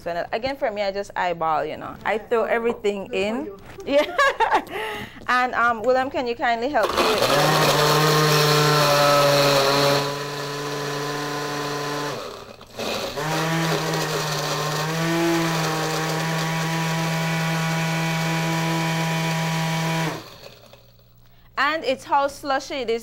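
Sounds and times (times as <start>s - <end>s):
blender blending ice: 6.8s - 21.0s.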